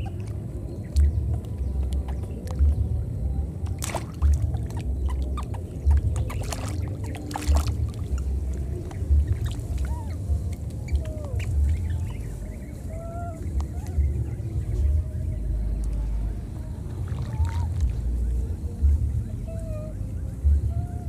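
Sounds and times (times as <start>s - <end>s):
wind buffeting microphone: 0.0s - 21.0s
splashing in shallow water: 3.6s - 12.3s, 16.8s - 18.4s
squeaky animal chirps: 4.5s - 7.3s, 9.3s - 12.2s.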